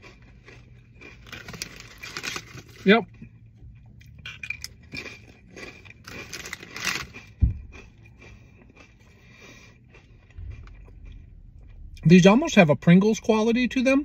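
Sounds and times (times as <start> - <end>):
crunching and chewing crisp: 0.0 - 14.0
low thump: 7.4 - 7.7.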